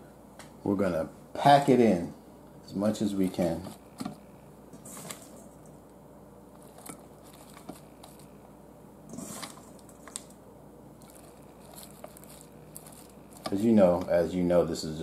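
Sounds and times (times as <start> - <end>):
steady low hum: 0.0 - 15.0
crinkling: 6.5 - 8.4, 9.1 - 10.4, 11.0 - 14.3
cabbage leaves rustling and crunching: 11.0 - 14.1.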